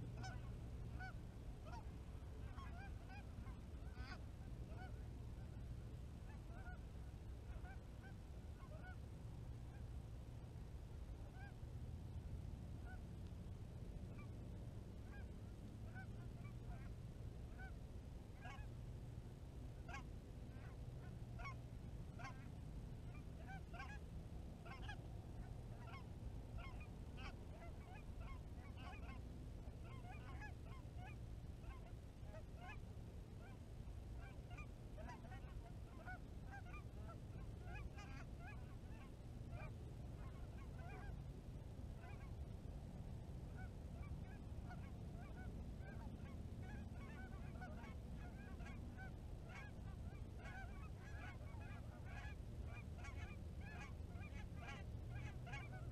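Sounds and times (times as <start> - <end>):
geese honking: 0.0 - 5.6, 6.2 - 6.8, 7.4 - 9.0, 11.3 - 11.6, 15.0 - 16.9, 17.5 - 17.8, 18.4 - 18.7, 19.8 - 24.0, 24.6 - 32.8, 34.2 - 41.2, 42.0 - 42.3, 43.5 - 55.9.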